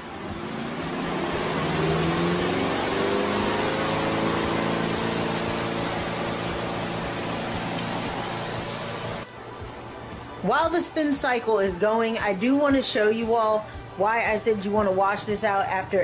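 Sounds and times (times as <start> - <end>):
drum whirring hiss: 0.0 - 9.2
spin-dryer motor hum: 0.0 - 9.2.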